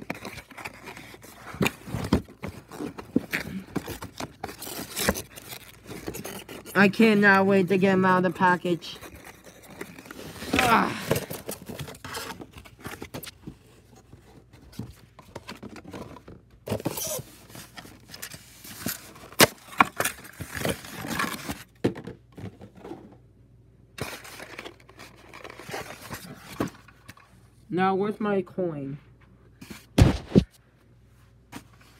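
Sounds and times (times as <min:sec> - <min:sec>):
packaging rustling and crinkling: 0:00.0 - 0:21.7.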